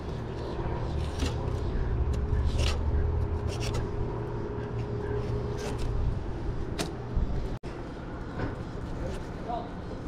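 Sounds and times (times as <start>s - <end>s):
steady low hum: 0.0s - 10.0s
knife scraping fish skin: 0.9s - 3.9s.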